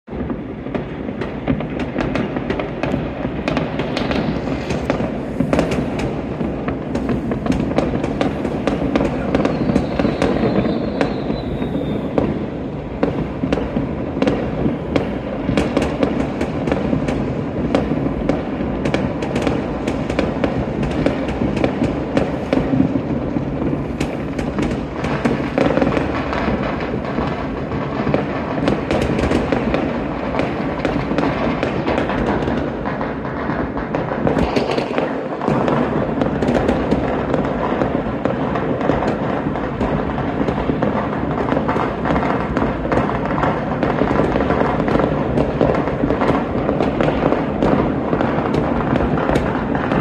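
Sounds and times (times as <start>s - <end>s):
distant firework bangs: 0.0s - 50.0s
firework cracks and pops: 0.0s - 50.0s
falling firework whistle: 2.8s - 13.6s.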